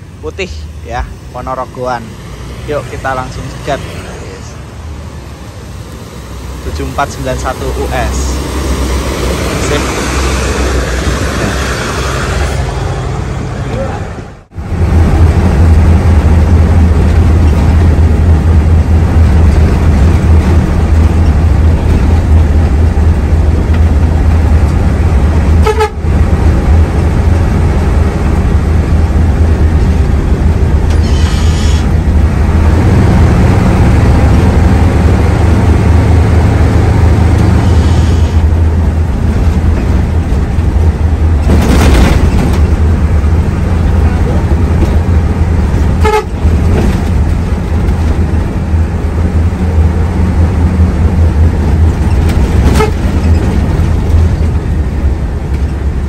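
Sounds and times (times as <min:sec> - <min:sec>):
bus diesel engine droning: 0:00.0 - 0:56.0
horn toots: 0:25.6 - 0:26.1, 0:46.0 - 0:46.4, 0:52.6 - 0:53.2.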